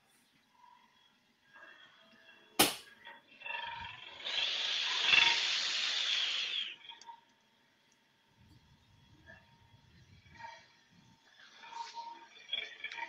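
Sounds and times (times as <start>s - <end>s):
sharp knock: 2.6s - 2.9s.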